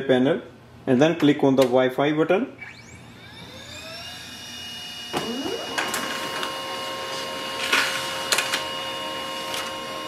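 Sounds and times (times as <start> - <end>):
printer motor whine: 2.6 - 10.0.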